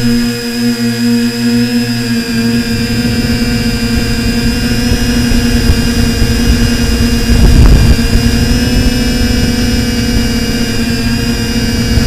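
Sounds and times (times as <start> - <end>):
drone propellers whining: 0.0 - 12.0
wind rumbling on microphone: 2.0 - 12.0.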